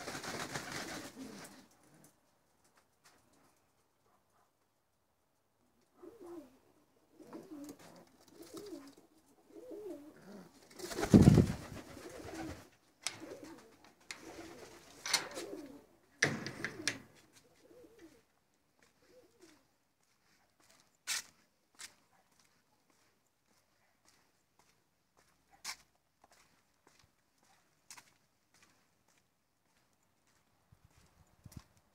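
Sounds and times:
doves cooing: 0:00.7 - 0:02.2, 0:05.8 - 0:18.3, 0:19.0 - 0:19.7.

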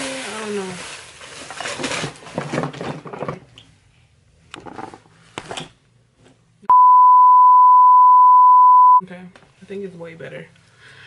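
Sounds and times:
censor bleep: 0:06.7 - 0:09.0.

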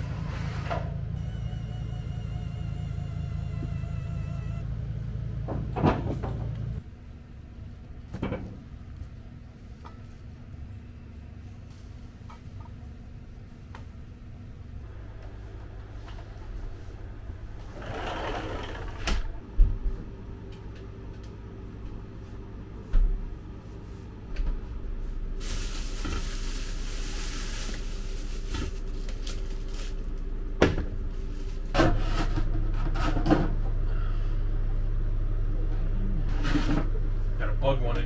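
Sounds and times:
steady low hum: 0:00.0 - 0:38.0
plastic bags rustling: 0:25.4 - 0:30.2.

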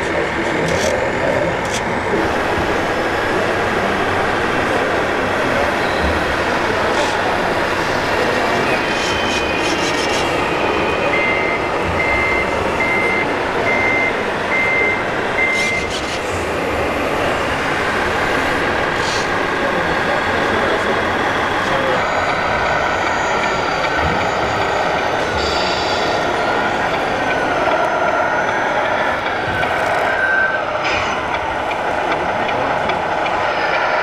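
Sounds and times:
crowd din in a hall: 0:00.0 - 0:34.0
reversing alarm beeps: 0:10.5 - 0:16.0, 0:30.0 - 0:30.8.

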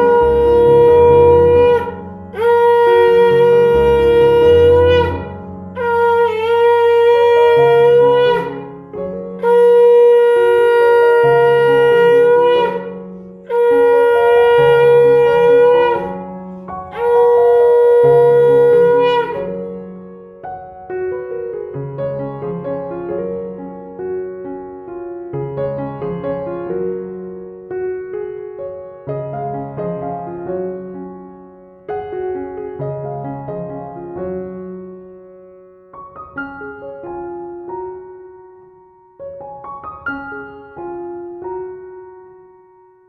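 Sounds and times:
wind instrument long held notes: 0:00.0 - 0:20.0
low sustained keyboard: 0:00.0 - 0:35.7.

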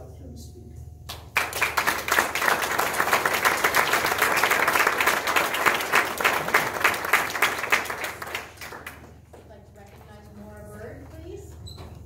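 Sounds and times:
audience applauding: 0:01.1 - 0:09.3.

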